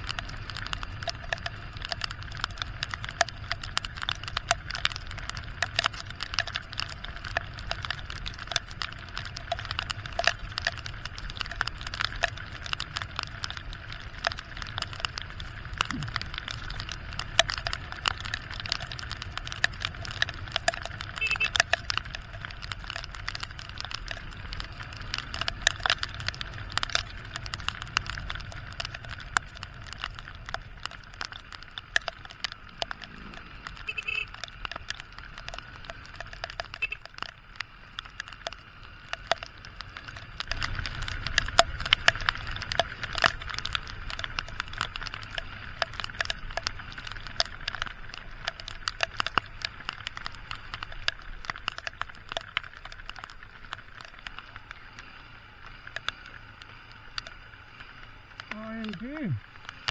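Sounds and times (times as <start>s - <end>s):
motorcycle engine rumble: 0.0s - 59.9s
raindrops tapping on microphone: 0.0s - 59.9s
tyres hissing on wet road: 54.4s - 59.8s.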